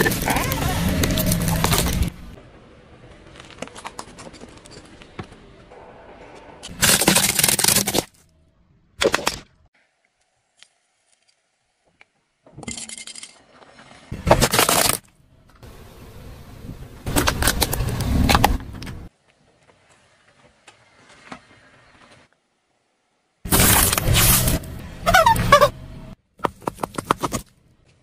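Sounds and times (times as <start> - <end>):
plastic crunching under car tyre: 0.0 - 2.1, 6.7 - 8.2, 14.2 - 15.1, 23.5 - 25.3.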